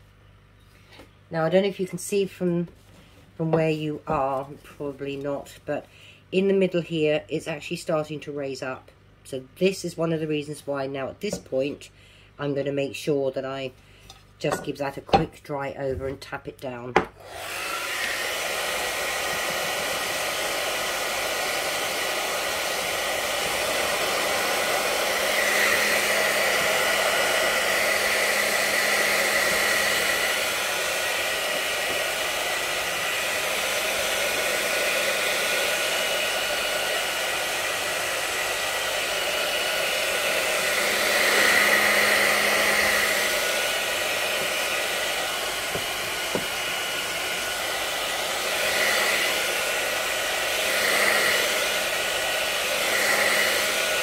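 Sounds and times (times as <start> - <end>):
hair dryer blowing: 17.0 - 54.0.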